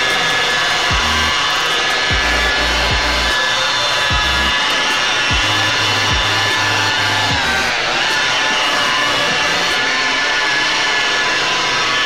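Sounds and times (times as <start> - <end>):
electronic dance music: 0.0 - 10.5
rotary polisher whine: 0.0 - 12.0
deep falling kick drums: 0.9 - 1.3, 4.1 - 4.5, 6.1 - 6.4.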